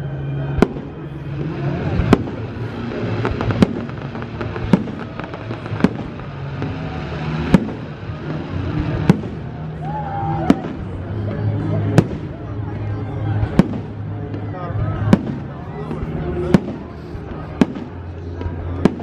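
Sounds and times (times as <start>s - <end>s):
steady background din: 0.0s - 19.0s
firework shells bursting: 2.0s - 9.8s.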